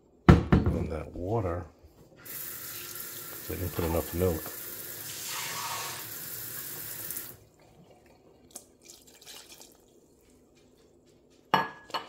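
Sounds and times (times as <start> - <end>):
kitchen faucet running: 2.2 - 7.5
kitchenware clink: 11.5 - 12.0.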